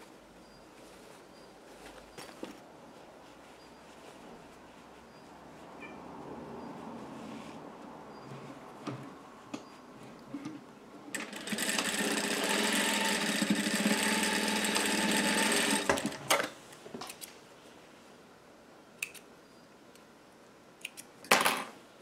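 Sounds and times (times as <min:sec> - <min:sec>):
industrial sewing machine stitching: 0:11.1 - 0:16.4
sewing machine clicks: 0:11.1 - 0:16.5.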